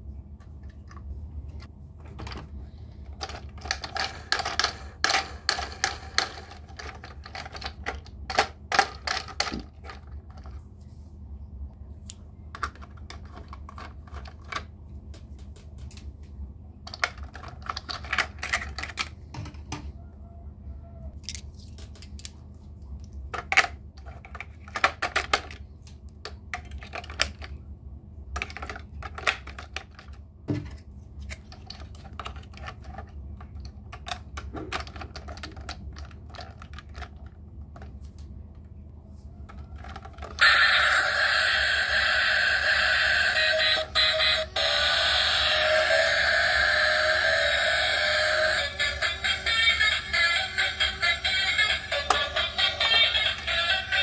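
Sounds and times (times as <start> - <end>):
low steady hum: 0.0 - 54.0
toys clicking and clacking: 3.2 - 10.5, 39.5 - 54.0.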